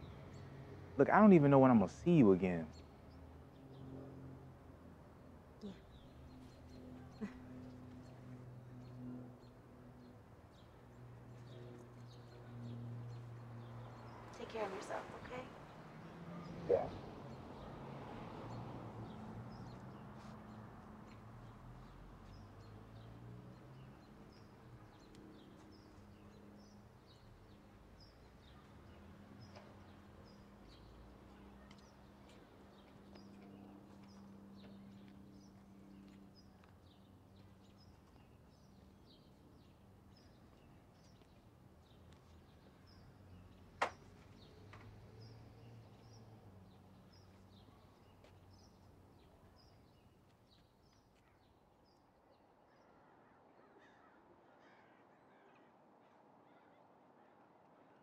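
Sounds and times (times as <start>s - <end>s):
small birds chirping: 5.6s - 17.8s, 18.4s - 52.1s.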